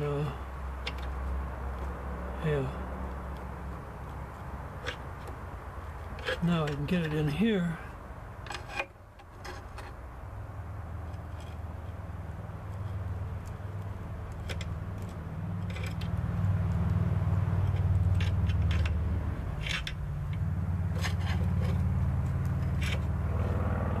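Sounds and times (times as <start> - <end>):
low mechanical hum: 0.0 - 24.0
metallic clinks and scrapes: 4.3 - 7.4, 8.4 - 10.0, 14.3 - 16.8, 17.6 - 23.5.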